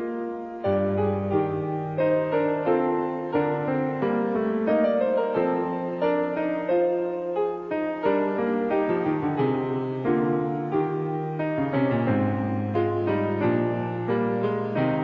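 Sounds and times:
instrumental theme music: 0.0s - 15.0s.

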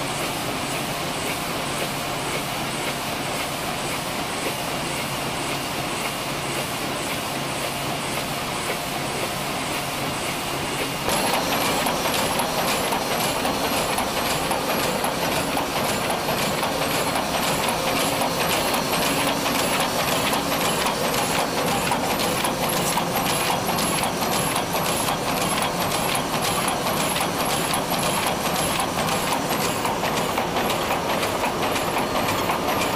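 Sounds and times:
printing press clattering: 10.8s - 32.9s.

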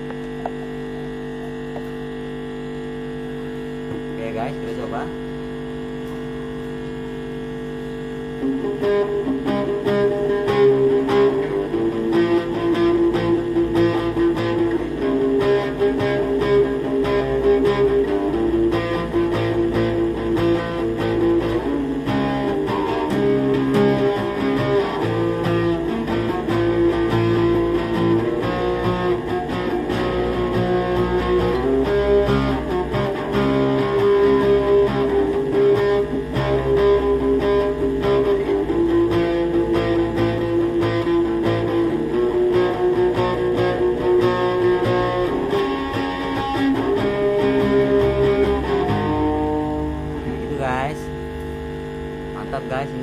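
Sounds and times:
distorted guitar notes: 0.0s - 53.0s.

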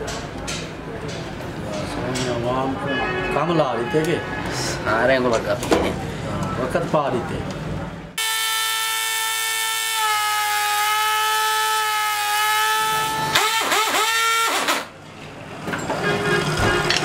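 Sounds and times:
electric air horn blaring: 8.2s - 14.9s.

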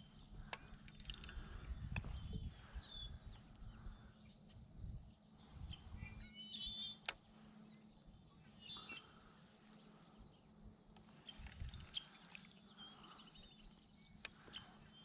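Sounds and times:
faint bird chirps: 0.0s - 15.0s
trilled bird call: 5.6s - 9.3s.

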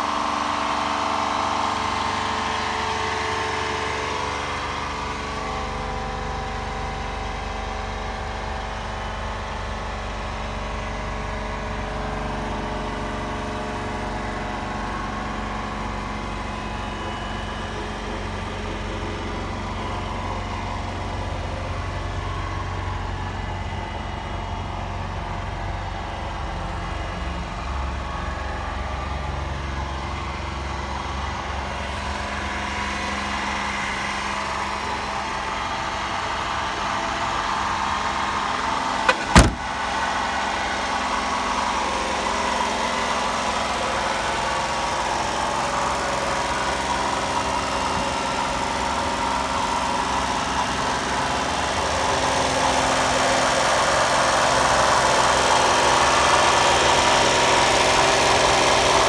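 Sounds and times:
small truck engine idling: 0.0s - 59.0s
sharp bang: 39.1s - 39.8s.

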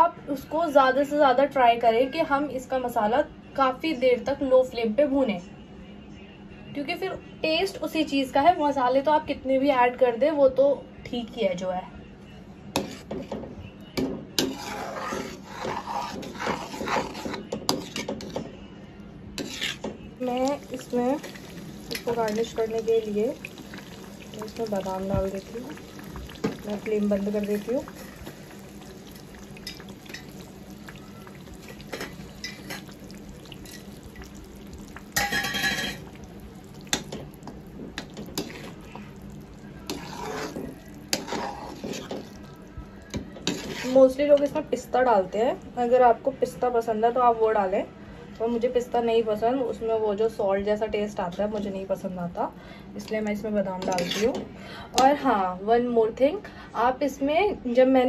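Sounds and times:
metal spatula scraping a pan: 12.8s - 13.3s, 14.4s - 18.4s, 19.4s - 22.7s, 25.5s - 33.0s, 35.2s - 36.1s, 38.0s - 39.2s, 39.8s - 42.4s, 43.2s - 44.5s, 53.8s - 54.4s
metal spatula scraping thick paste: 12.8s - 13.3s, 14.4s - 18.4s, 19.4s - 19.9s, 39.8s - 42.4s, 43.4s - 44.2s, 53.8s - 54.4s.

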